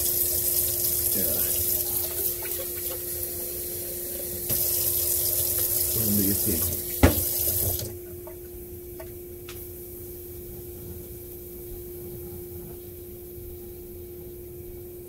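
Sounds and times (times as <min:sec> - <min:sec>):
kitchen tap running: 0:00.0 - 0:08.4
steady low hum: 0:00.2 - 0:15.0
tap shut off knock: 0:07.0 - 0:07.9.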